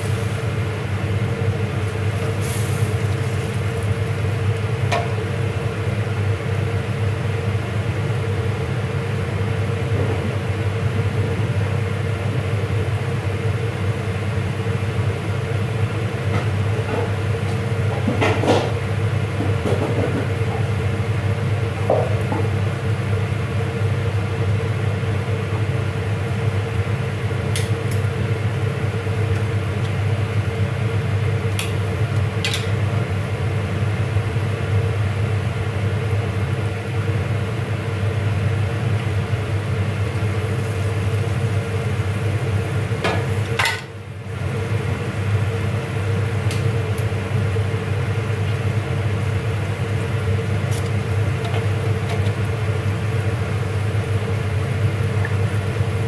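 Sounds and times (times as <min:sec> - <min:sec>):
tomatoes sizzling in a pan: 0:00.0 - 0:00.7, 0:01.8 - 0:04.5.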